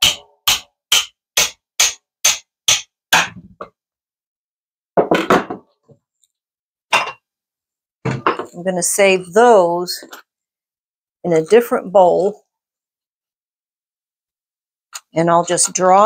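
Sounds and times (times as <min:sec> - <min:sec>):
hammer striking knife spine: 0:00.0 - 0:03.5
knock: 0:05.0 - 0:05.7.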